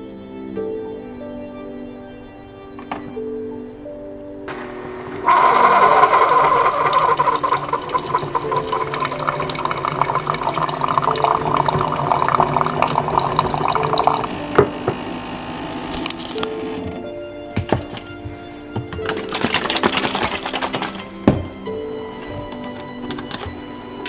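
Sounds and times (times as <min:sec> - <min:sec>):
coffee streaming into mug: 0:05.3 - 0:15.0, 0:19.1 - 0:21.2
coffee maker pump running: 0:05.3 - 0:16.9.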